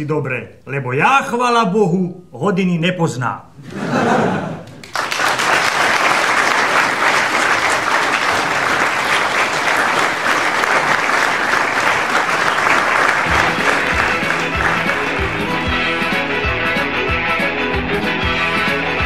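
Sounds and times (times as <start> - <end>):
audience applauding: 4.6 - 16.0.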